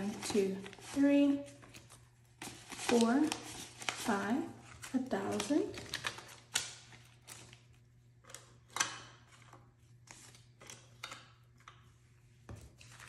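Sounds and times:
paper banknotes rustling: 0.0s - 7.7s.

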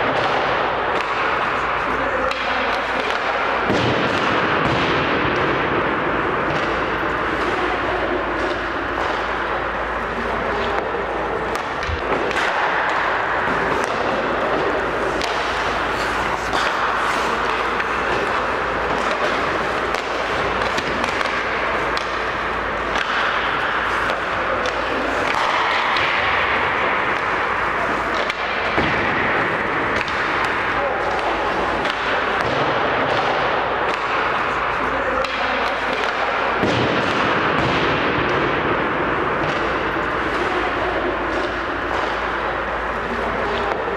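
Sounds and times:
hockey sticks and pucks clacking: 0.0s - 43.9s
skate blades scraping ice: 11.2s - 32.4s.

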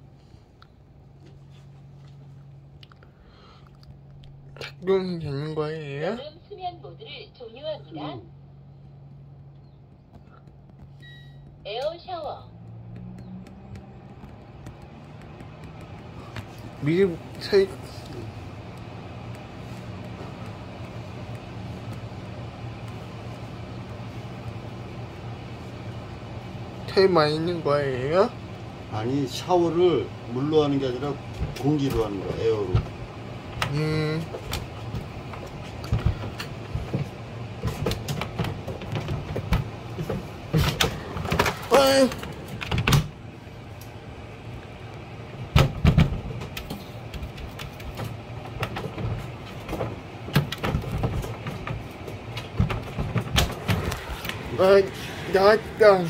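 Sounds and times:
blower humming with rushing air: 0.0s - 56.0s
knocks: 9.9s - 16.6s.

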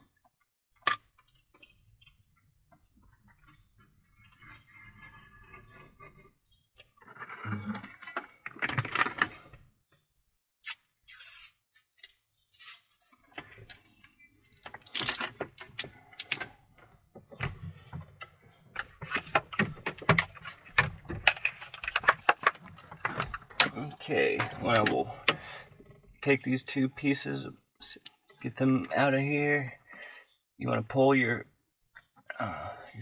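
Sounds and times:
short hissing sounds: 11.1s - 11.6s.

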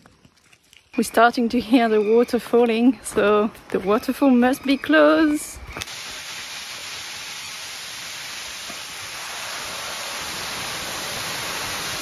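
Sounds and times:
waterfall rushing: 5.9s - 12.0s.

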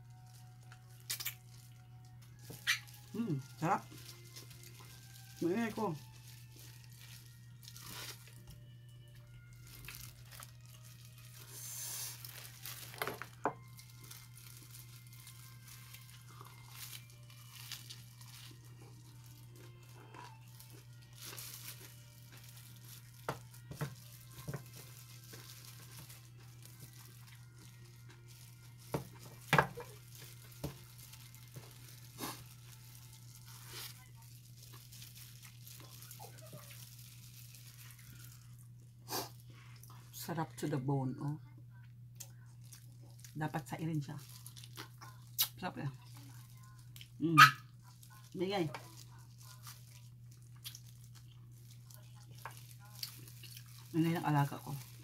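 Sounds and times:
plastic gloves crinkling: 0.0s - 41.3s, 42.2s - 55.0s
meat being torn apart: 0.2s - 3.1s, 28.6s - 38.3s, 48.8s - 53.9s.

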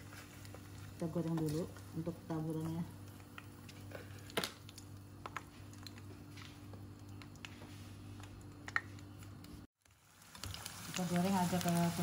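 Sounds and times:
garlic frying in hot oil: 0.0s - 5.1s, 9.8s - 12.0s
low steady hum: 0.0s - 9.7s.

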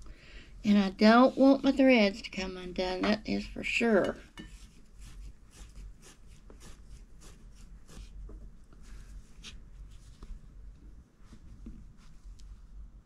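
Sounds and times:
yarn and fabric rustling: 0.6s - 3.4s.

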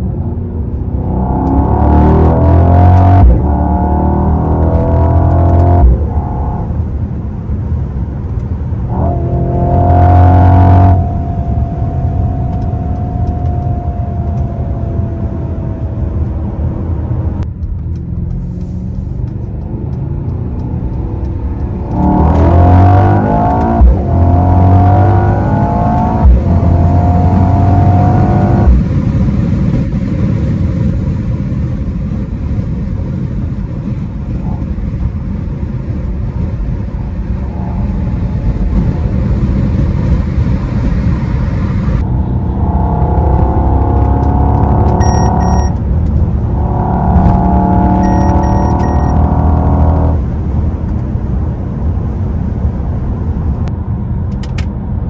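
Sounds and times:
car engine accelerating hard: 0.0s - 7.1s, 7.7s - 54.6s.

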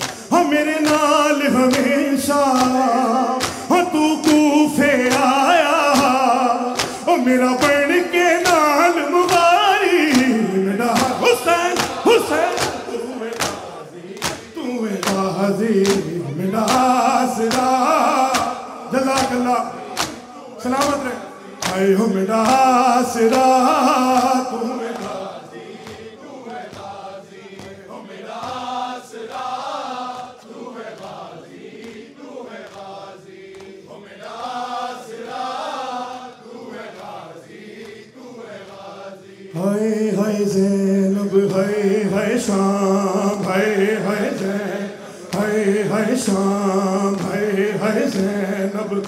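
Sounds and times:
men chanting together: 0.0s - 49.0s.

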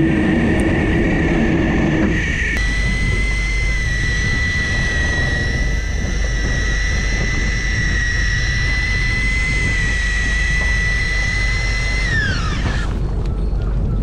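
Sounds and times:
electric fishing reel motor whining: 0.0s - 13.3s
low rumble: 0.0s - 14.0s.

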